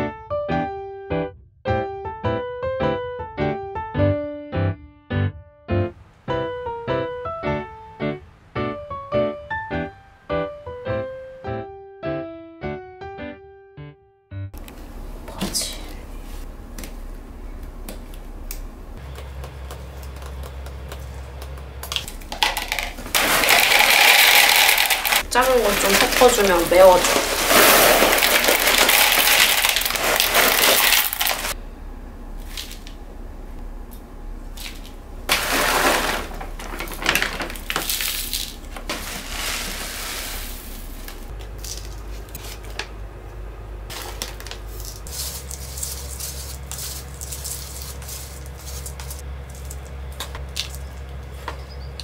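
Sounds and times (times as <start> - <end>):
stones rattling into a plastic pot: 22.0 - 31.6, 34.6 - 42.6, 43.9 - 51.0.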